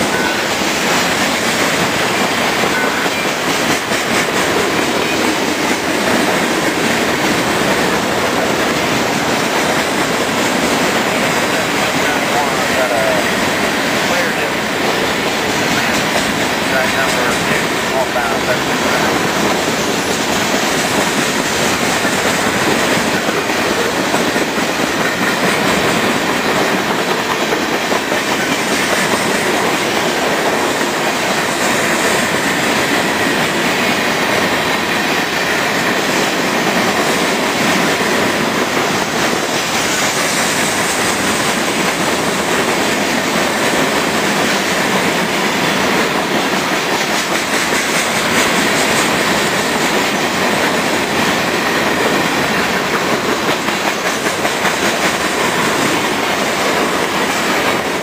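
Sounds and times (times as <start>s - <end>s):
train wheels on rails: 0.0s - 58.0s.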